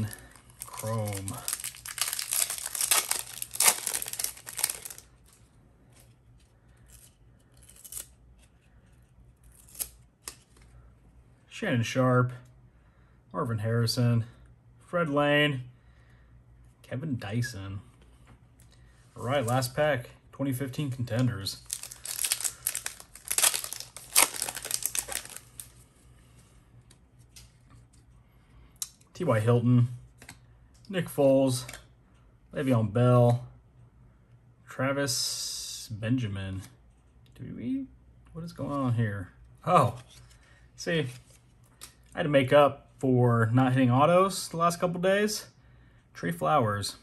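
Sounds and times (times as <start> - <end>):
foil wrapper tearing and crinkling: 0.0 - 5.1, 9.5 - 10.4, 21.6 - 25.7.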